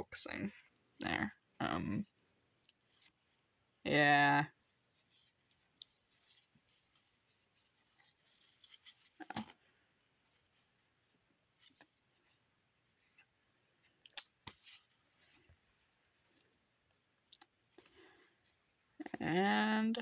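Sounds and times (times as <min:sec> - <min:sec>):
trading cards sliding and rustling: 0:05.0 - 0:10.8.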